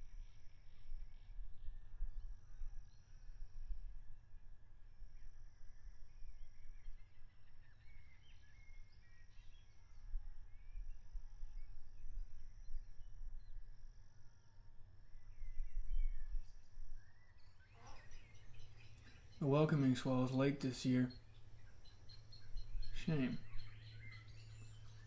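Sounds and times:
small birds chirping: 5.0 - 25.0.

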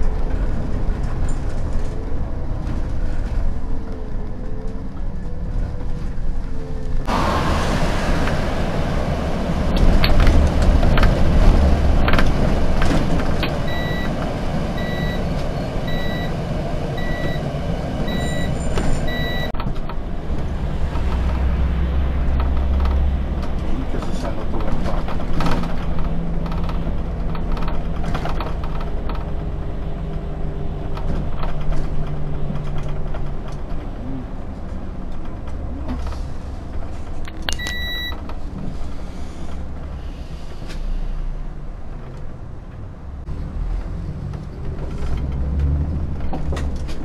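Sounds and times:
bus engine and road noise: 0.0 - 47.0
high electronic beep: 13.6 - 14.1, 14.8 - 16.4, 17.0 - 17.4, 18.1 - 19.5, 37.5 - 38.1
rattles and knocks: 19.6 - 37.3.

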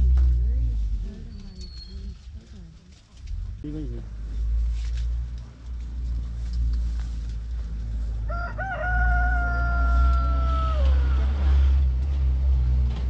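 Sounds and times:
low rumble: 0.0 - 13.0
rooster crowing: 8.2 - 11.4.

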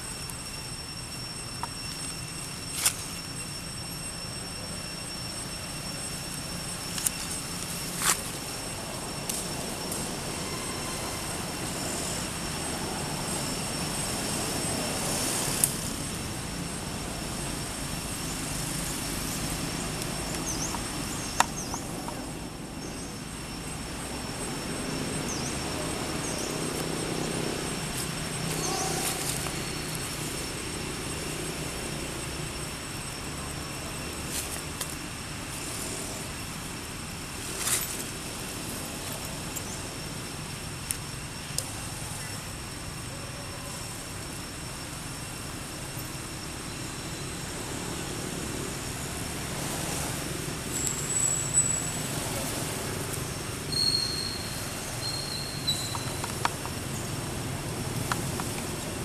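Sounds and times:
high thin whine: 0.0 - 42.7
faint chirps: 16.7 - 34.6, 37.5 - 59.0.

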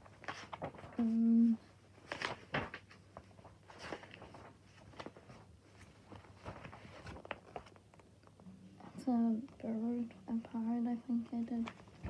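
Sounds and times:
paper pages rustling: 0.0 - 8.4, 11.1 - 12.0.

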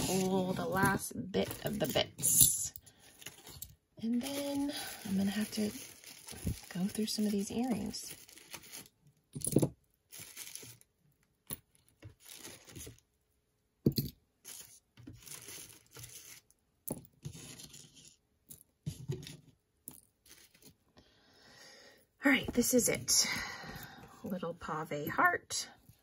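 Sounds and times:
plastic bag crinkling: 3.2 - 9.0, 10.1 - 10.9, 12.2 - 13.0, 14.5 - 16.4.

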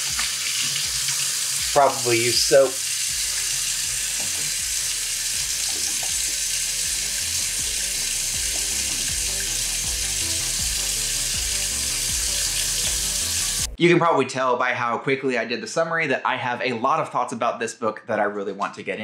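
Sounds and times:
hands washing under water: 0.0 - 9.6
faucet running into sink: 0.0 - 13.7.

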